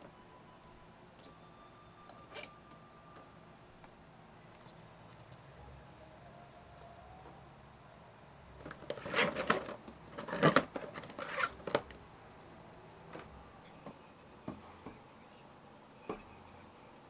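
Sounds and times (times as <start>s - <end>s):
household items rustling and clicking: 8.6s - 12.0s.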